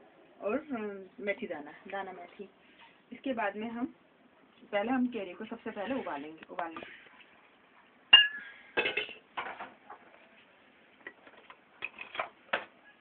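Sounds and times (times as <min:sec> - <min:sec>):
pot knocks and clinks: 0:08.2 - 0:09.2
metal pot clanking: 0:08.2 - 0:09.6.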